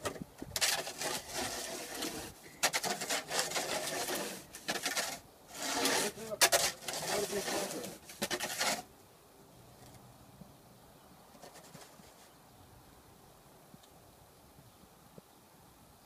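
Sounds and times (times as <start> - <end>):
snow shovel scraping: 0.6 - 8.9.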